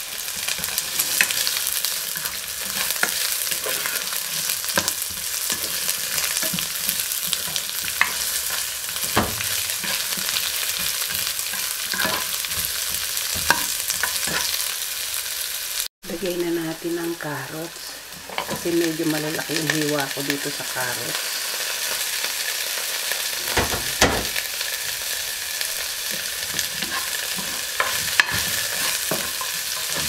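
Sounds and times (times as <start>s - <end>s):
vegetables sizzling in oil: 0.0s - 30.0s
spoon knocking and scraping pan: 0.4s - 14.6s, 23.4s - 24.5s, 25.8s - 30.0s.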